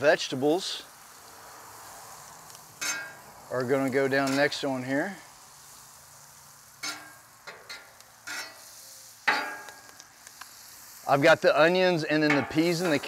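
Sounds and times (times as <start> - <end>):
butter sizzling on griddle: 0.0 - 13.0
metal spatula scraping steel: 2.8 - 3.2, 4.1 - 4.7, 6.8 - 9.8.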